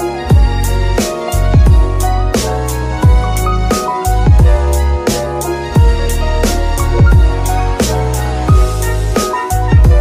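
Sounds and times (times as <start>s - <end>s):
sustained bass and melodic notes: 0.0s - 10.0s
deep bass drum hits: 3.0s - 3.4s, 4.3s - 4.7s, 6.8s - 7.5s.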